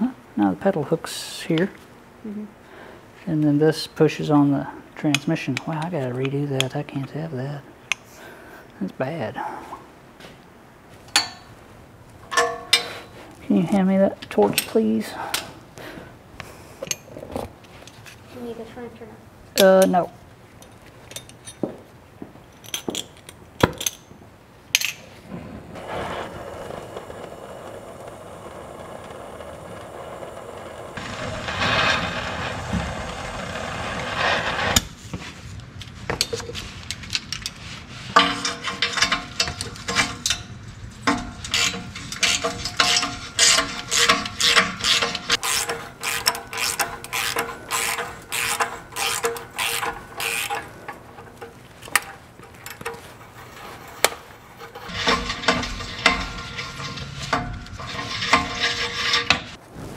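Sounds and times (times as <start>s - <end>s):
steady rushing noise: 25.6s - 36.8s
ratchet wrench clicking: 41.5s - 50.8s.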